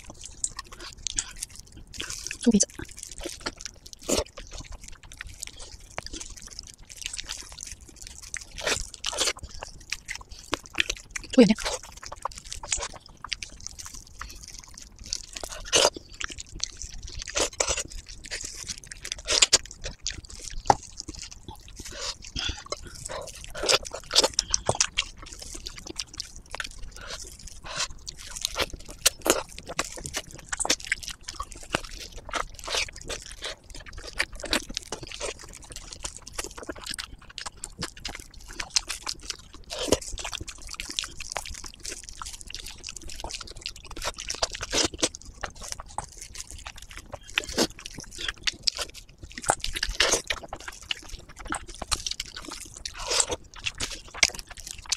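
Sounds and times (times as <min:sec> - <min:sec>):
wet smacking chewing: 0:00.0 - 0:54.9.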